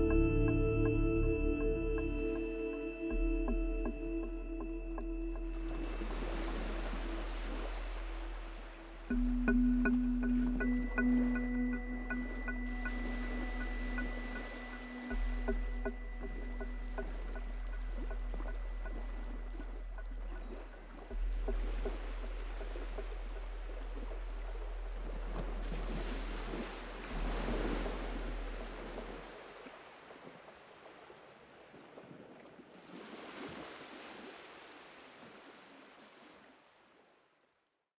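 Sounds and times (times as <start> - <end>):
steady low drone: 0.0 - 29.2
rushing surf-like noise: 5.6 - 17.5.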